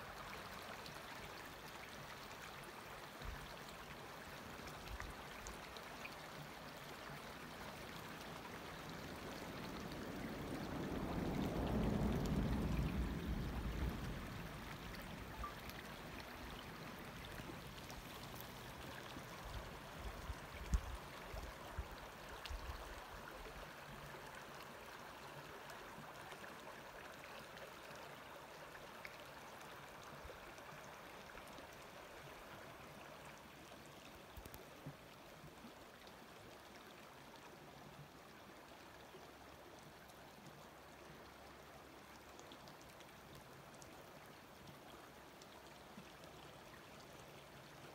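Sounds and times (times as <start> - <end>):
creek flowing: 0.0 - 47.9.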